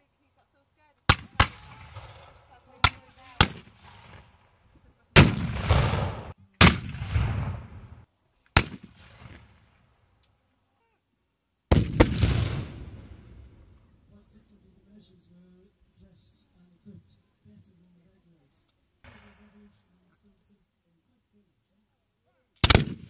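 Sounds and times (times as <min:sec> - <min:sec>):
musket shots: 0:01.1 - 0:04.4, 0:05.2 - 0:09.7, 0:11.7 - 0:13.2, 0:19.0 - 0:19.5, 0:22.6 - 0:23.0
cannon shots rumbling: 0:05.2 - 0:08.0, 0:11.7 - 0:13.7.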